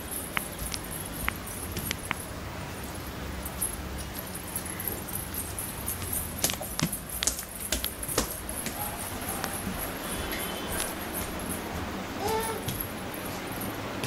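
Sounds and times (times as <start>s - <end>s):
footsteps on concrete floor: 5.9s - 13.8s.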